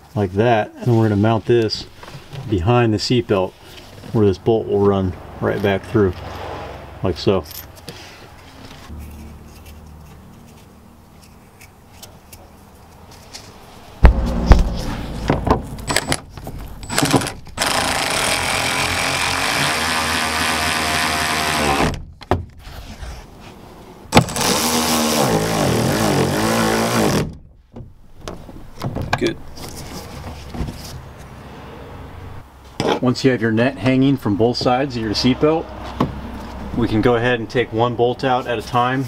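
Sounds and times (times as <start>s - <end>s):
loud knock: 14.0s - 17.5s.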